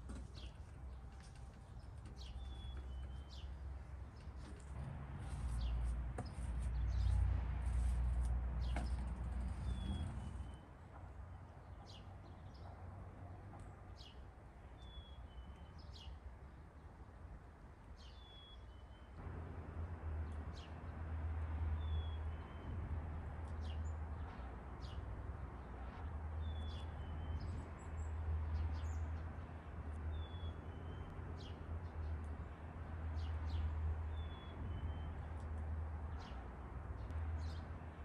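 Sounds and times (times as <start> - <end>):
small birds chirping: 0.1 - 4.6, 8.6 - 10.8, 26.4 - 37.8.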